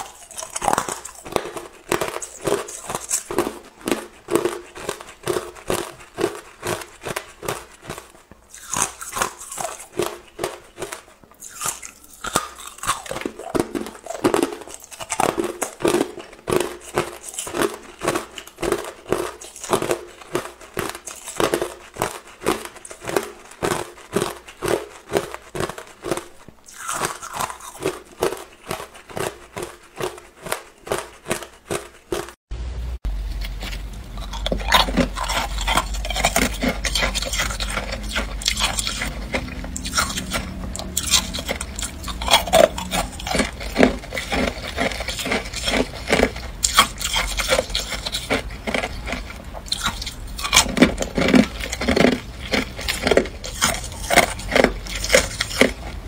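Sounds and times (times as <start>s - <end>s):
person crunching ice: 0.0s - 32.4s, 33.4s - 56.0s.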